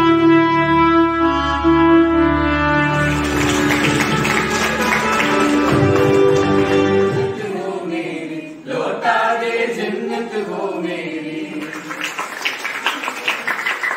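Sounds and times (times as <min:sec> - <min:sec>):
recorded music: 0:00.0 - 0:08.6
people clapping: 0:02.9 - 0:07.4, 0:11.4 - 0:13.9
group singing into microphone: 0:06.2 - 0:12.2.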